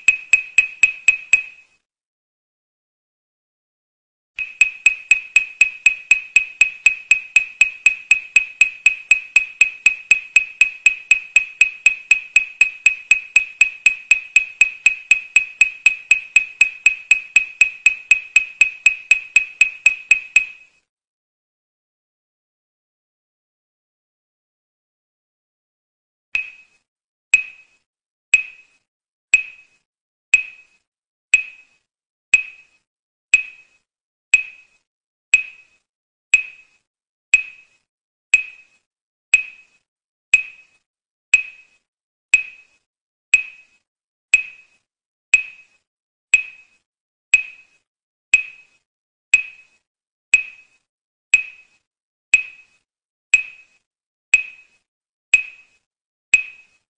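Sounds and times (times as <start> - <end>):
bright electronic ping: 0.0 - 1.6, 4.4 - 20.6.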